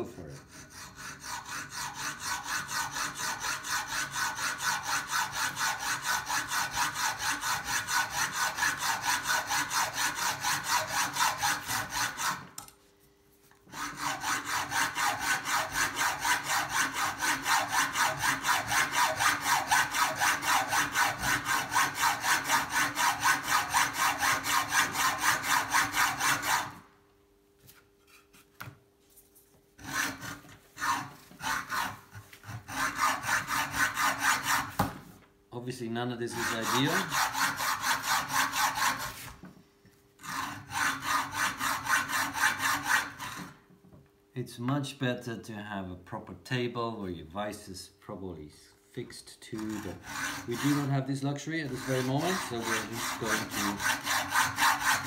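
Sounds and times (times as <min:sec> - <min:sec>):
hacksaw cutting metal: 0:00.0 - 0:12.7, 0:13.7 - 0:26.8, 0:29.8 - 0:34.8, 0:36.3 - 0:39.2, 0:40.2 - 0:43.6, 0:49.5 - 0:55.0.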